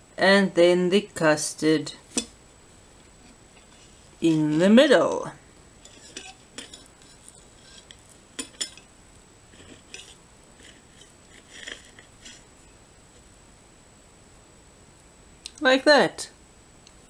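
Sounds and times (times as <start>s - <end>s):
cutlery scraping on plate: 5.8s - 8.9s, 9.5s - 12.5s.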